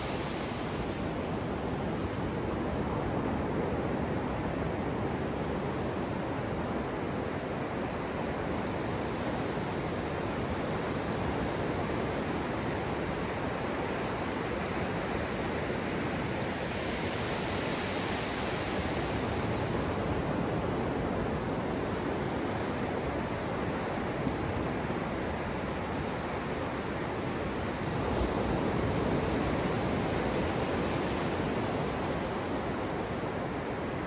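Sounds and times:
ocean surf washing on sand: 0.0 - 34.0.

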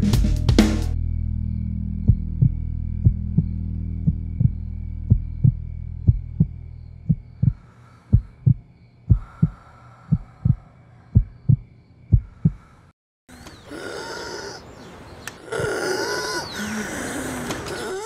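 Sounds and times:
low drone: 0.9 - 7.6
heartbeat thumps: 2.0 - 12.6.

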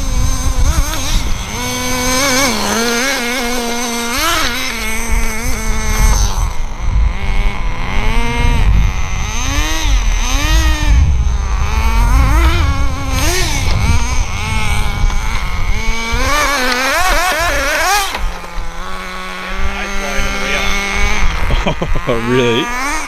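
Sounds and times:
small engine revving: 0.0 - 23.0
low rumble: 6.7 - 21.6.

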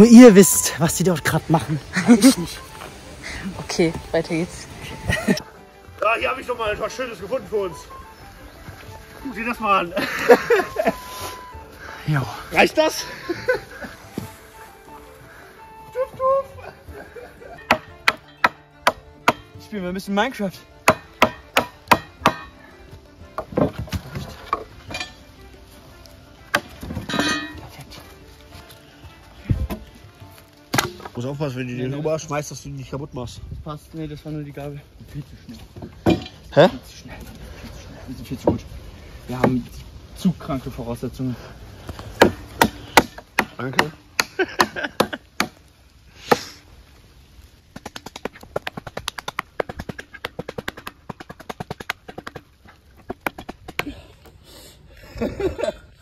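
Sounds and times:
faint background music: 0.0 - 45.6
wood cracking and rattling: 23.3 - 25.2
wooden knocks and clacks: 23.3 - 25.2, 47.7 - 53.9.

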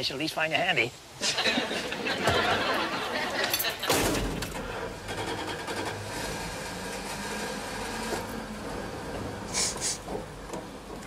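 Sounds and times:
van engine rattling: 3.6 - 11.0
short bursts of hiss: 9.5 - 10.0.

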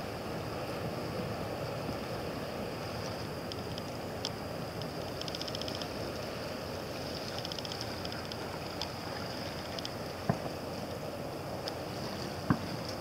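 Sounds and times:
outdoor rumble and hiss: 0.0 - 13.0
rapid high ticking: 4.8 - 6.0.

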